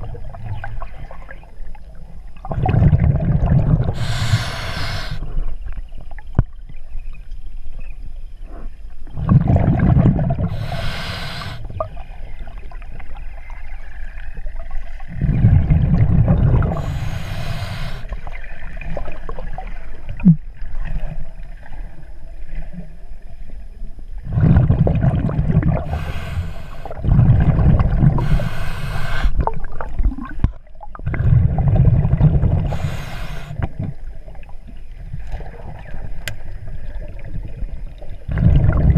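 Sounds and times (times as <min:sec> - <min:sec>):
exhaled bubbles rumbling: 0:00.0 - 0:07.2, 0:09.0 - 0:23.2, 0:24.1 - 0:38.9
water noise: 0:00.0 - 0:38.9
regulator hiss: 0:04.0 - 0:05.2, 0:10.5 - 0:11.7, 0:16.8 - 0:18.2, 0:25.9 - 0:27.0, 0:28.2 - 0:29.4, 0:32.7 - 0:33.6.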